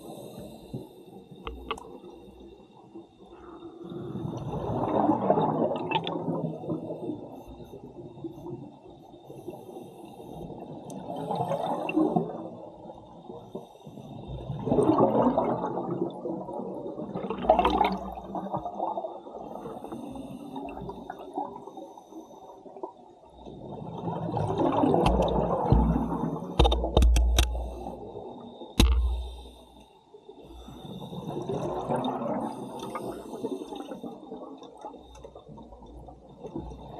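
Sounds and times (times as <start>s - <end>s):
gurgling exhaled air bubbles: 3.9s - 7.3s, 14.3s - 19.5s, 23.6s - 29.5s, 31.1s - 34.8s
sharp clicks: 26.6s - 27.7s.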